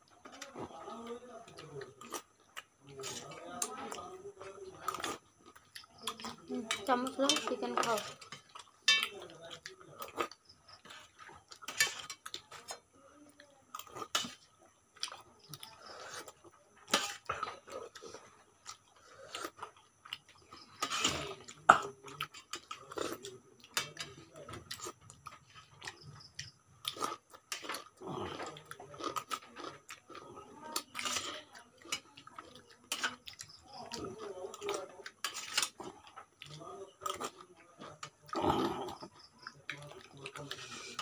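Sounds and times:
people chewing and slurping: 0.0 - 41.0
spoons scraping steel plate: 20.6 - 21.3.

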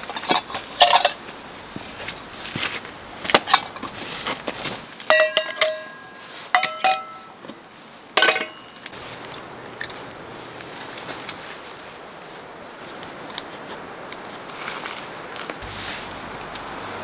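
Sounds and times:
metal cups clinking: 0.0 - 1.2, 5.1 - 7.4, 8.2 - 8.9.

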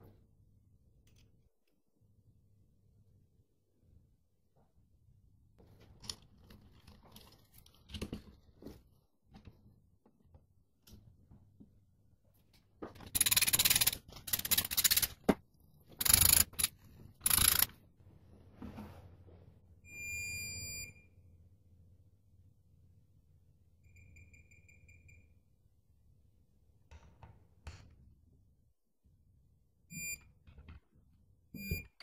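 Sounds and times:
ratchet clicking: 13.1 - 15.3, 16.0 - 17.7
high electronic beep: 29.9 - 30.2, 31.6 - 31.9.

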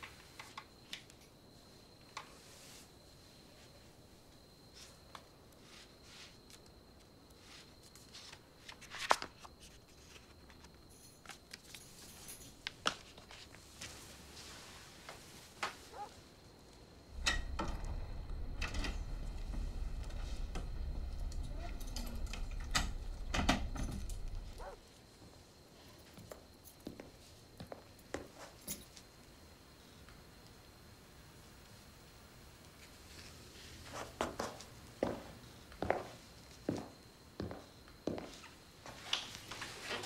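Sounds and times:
rustling on a sofa: 13.0 - 16.2
steady low hum: 17.0 - 24.8.

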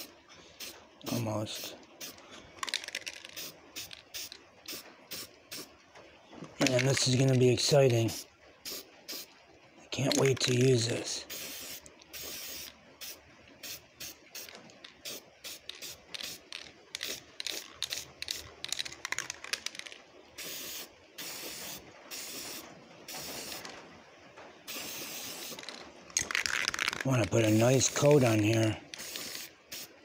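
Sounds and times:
aerosol can spraying: 10.1 - 23.7, 24.7 - 29.9.

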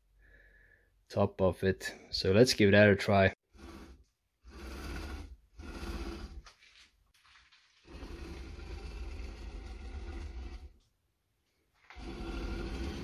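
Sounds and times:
metal stand scraping on metal plate: 3.5 - 6.6, 7.8 - 10.8, 11.8 - 13.0.

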